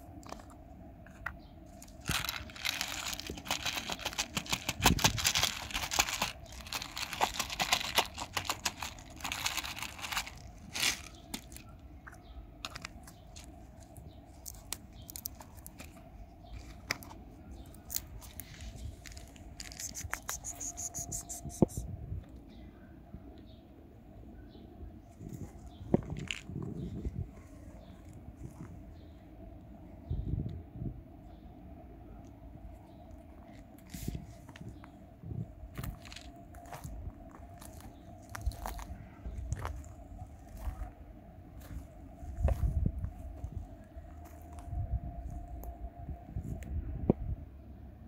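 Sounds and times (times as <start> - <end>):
cat kibble rattling onto wooden boards: 2.1 - 11.6.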